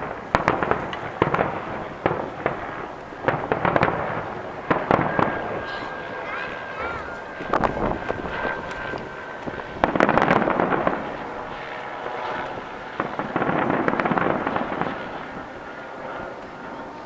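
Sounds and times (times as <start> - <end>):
firework shells bursting: 0.0 - 6.0, 7.1 - 11.2, 12.4 - 15.5
firework crackling: 0.0 - 16.8.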